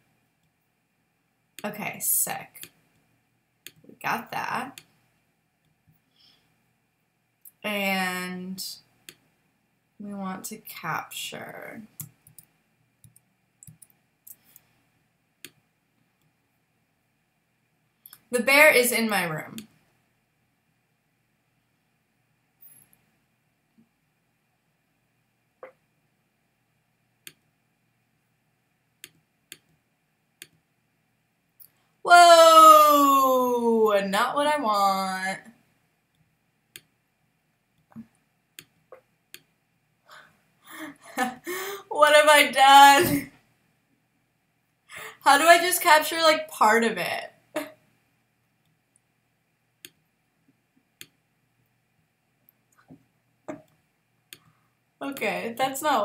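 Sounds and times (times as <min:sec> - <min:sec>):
computer mouse clicks: 0:11.9 - 0:14.7, 0:30.4 - 0:30.6.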